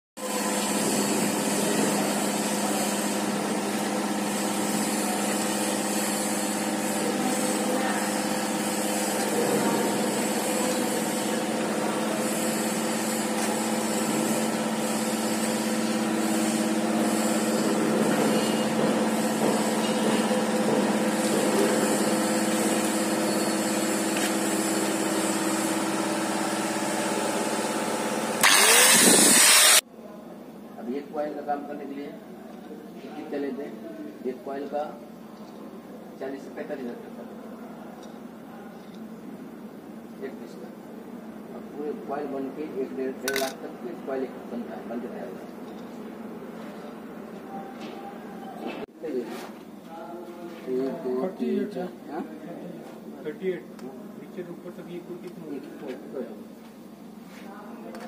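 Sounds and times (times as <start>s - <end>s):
angle grinder on steel: 0.3s - 29.8s.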